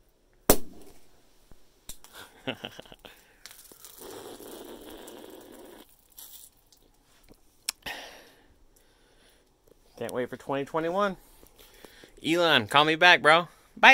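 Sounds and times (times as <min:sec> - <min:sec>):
steady hiss: 0:00.9 - 0:07.3
cork popping from bottle: 0:03.5 - 0:06.8.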